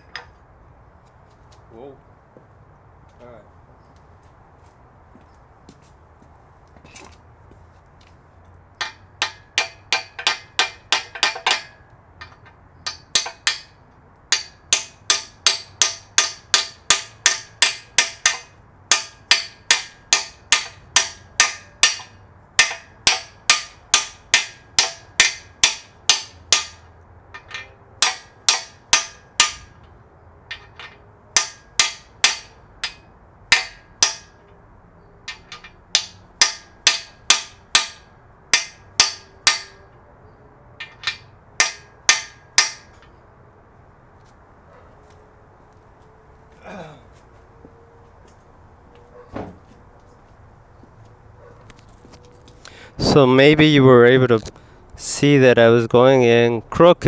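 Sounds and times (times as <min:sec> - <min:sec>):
hammer striking metal socket: 0:08.8 - 0:13.7, 0:14.3 - 0:29.7, 0:30.5 - 0:34.4, 0:35.3 - 0:39.8, 0:40.8 - 0:43.1.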